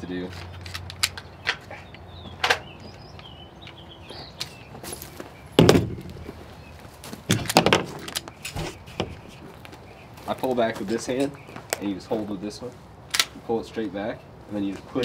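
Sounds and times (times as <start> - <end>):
pistol slide metallic clicks: 0.5 - 1.6
heavy thunk: 5.6 - 6.5.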